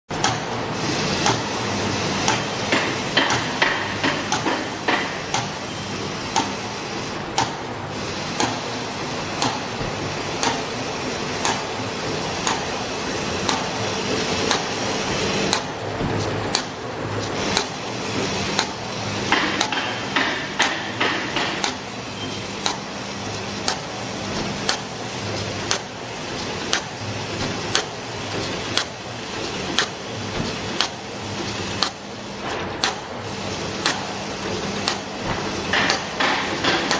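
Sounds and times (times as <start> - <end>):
machine clacking: 0.1 - 0.6, 2.2 - 5.6, 16.5 - 31.0, 33.8 - 36.9.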